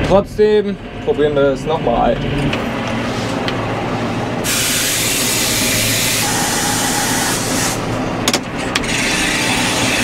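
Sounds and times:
tractor engine running: 0.0 - 10.0
loud hiss: 4.4 - 7.8.

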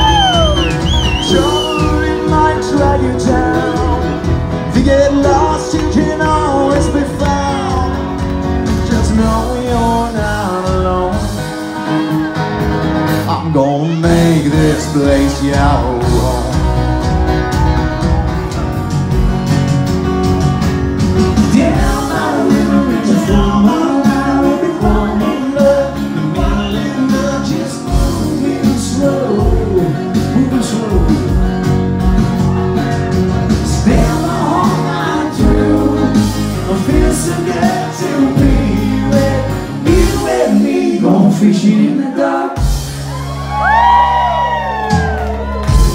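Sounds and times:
man singing lead vocal: 0.0 - 12.0, 13.2 - 17.1, 21.3 - 32.0, 33.5 - 42.9
drum kit: 0.0 - 13.4, 14.0 - 45.9
bass: 0.0 - 45.9
electric and acoustic guitars: 0.0 - 45.9.

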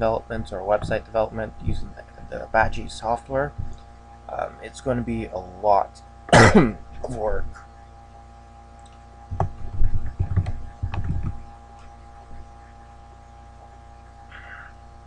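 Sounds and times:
steady electrical hum: 0.0 - 15.0
typing on computer keyboard: 9.3 - 11.4.

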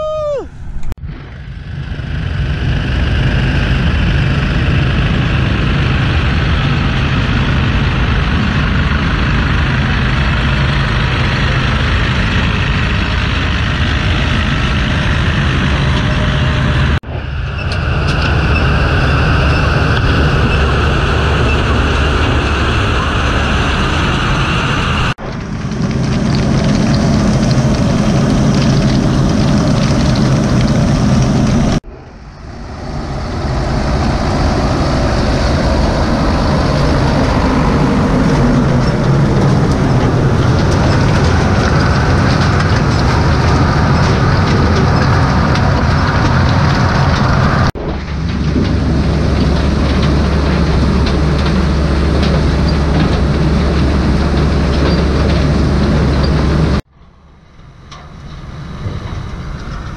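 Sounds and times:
tractor engine running: 0.5 - 59.9
harvester conveyors clattering: 33.5 - 56.8.

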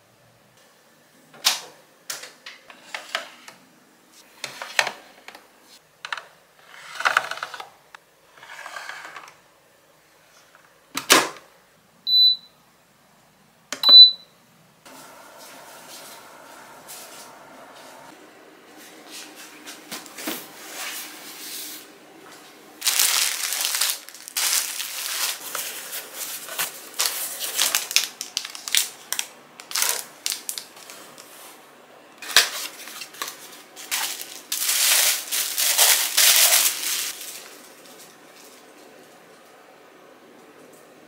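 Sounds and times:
cardboard and paper rustling: 22.8 - 31.6, 32.2 - 38.7.

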